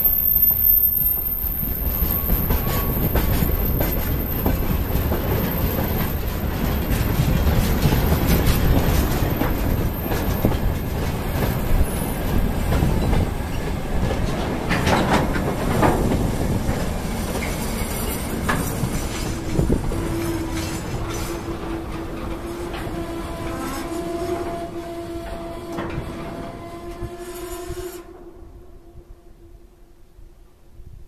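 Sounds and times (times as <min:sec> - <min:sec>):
train wheels squealing: 0:00.0 - 0:13.6
freight train rolling past: 0:00.0 - 0:30.0
wheels clattering over rail joints: 0:01.8 - 0:23.6.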